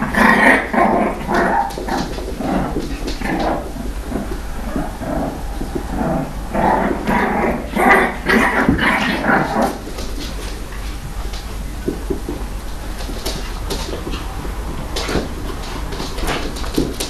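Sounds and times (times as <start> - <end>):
dogs growling: 0.0 - 10.2.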